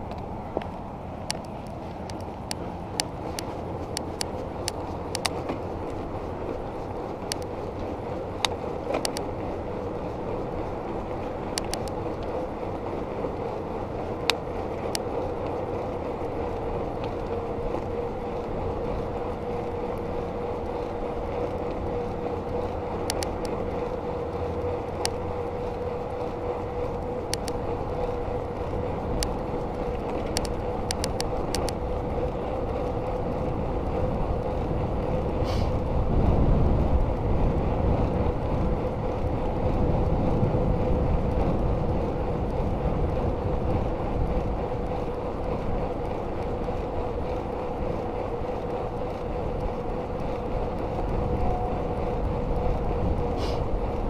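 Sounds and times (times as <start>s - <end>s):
light ticks: 0.0s - 34.8s
bicycle wind and tyre noise: 0.0s - 54.0s.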